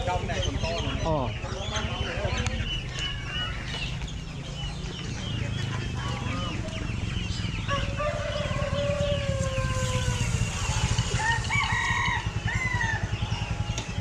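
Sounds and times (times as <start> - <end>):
chickens clucking: 0.0 - 14.0
small birds chirping: 0.0 - 14.0
steady low rumble: 0.0 - 14.0
rooster crowing: 7.7 - 13.2.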